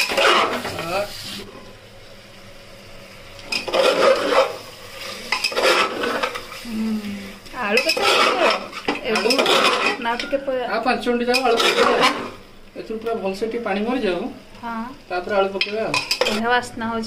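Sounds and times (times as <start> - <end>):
metal ladle scraping a pot: 0.0 - 0.7, 3.5 - 4.6, 5.3 - 6.4, 7.7 - 10.3, 11.3 - 12.4
light sizzle: 0.0 - 17.0.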